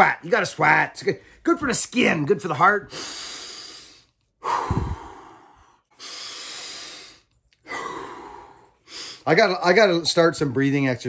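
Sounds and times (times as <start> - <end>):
man breathing deeply: 2.9 - 9.3.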